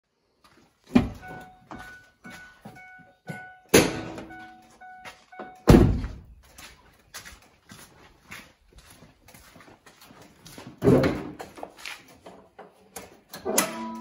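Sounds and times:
car door warning chime: 1.0 - 5.8
car door slam: 5.7 - 6.2
heavy thud: 5.7 - 6.3.

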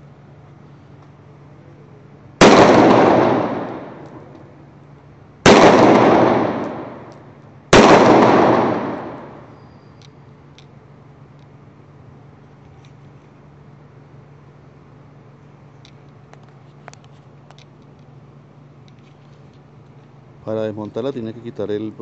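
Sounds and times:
blank pistol shots with echo: 2.4 - 4.3, 5.5 - 9.5.

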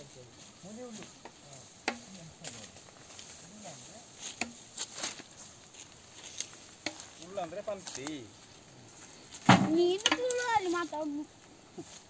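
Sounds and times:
dry palm fronds snapping: 4.2 - 8.2, 9.7 - 10.6.

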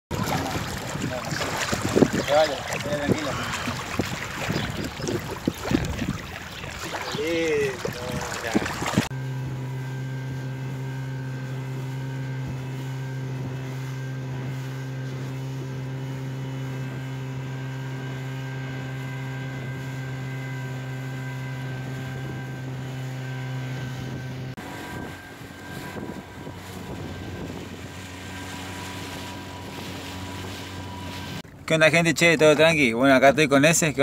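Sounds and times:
rush of wind and water: 0.1 - 9.1, 21.4 - 31.7
motor humming steadily: 0.1 - 31.7.

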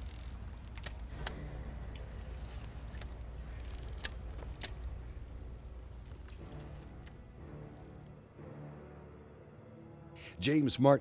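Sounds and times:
fishing rod and reel clicks: 0.0 - 8.2.

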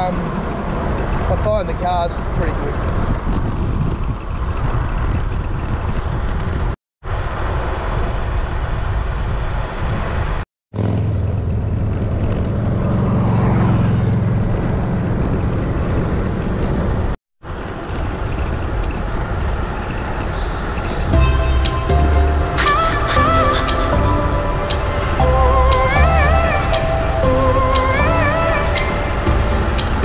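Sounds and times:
wind on microphone: 0.0 - 10.4
road noise: 0.0 - 30.0
vehicle engine passing close: 10.8 - 19.3.

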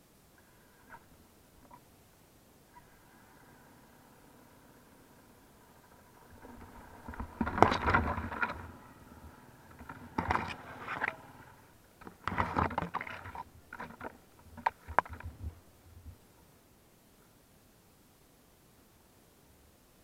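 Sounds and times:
palm fronds scraping camera: 5.8 - 15.6
bike jolting knocks: 7.0 - 8.8.

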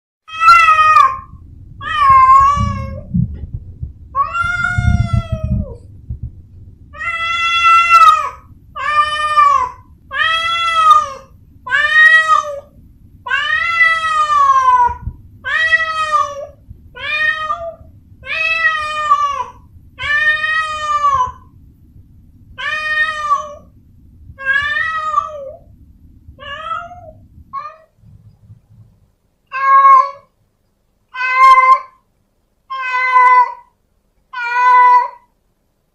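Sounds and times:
cat meowing: 0.3 - 3.1, 4.2 - 5.8, 6.9 - 12.7, 13.3 - 21.5, 22.6 - 23.7, 24.4 - 25.6, 26.4 - 28.0, 29.5 - 30.3, 31.1 - 32.0, 32.7 - 33.7, 34.3 - 35.3.

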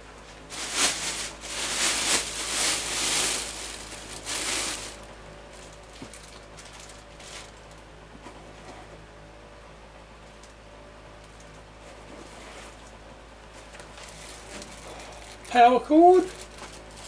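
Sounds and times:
faint handling sounds: 0.1 - 9.0, 11.2 - 15.6
plastic bag rustling and crinkling: 0.3 - 7.8, 13.5 - 17.0.

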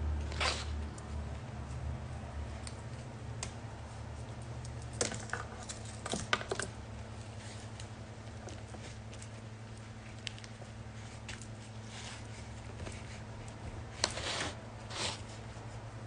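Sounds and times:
steady low hum: 0.0 - 16.0
stems snipped with clicks and snaps: 2.6 - 3.6.

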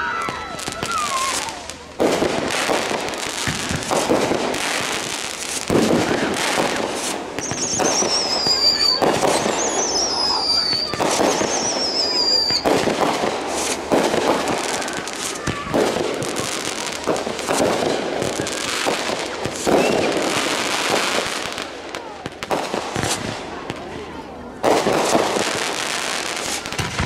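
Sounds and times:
falling firework whistles: 0.0 - 1.8, 2.5 - 21.6
fireworks bangs and bursts: 0.0 - 27.0.

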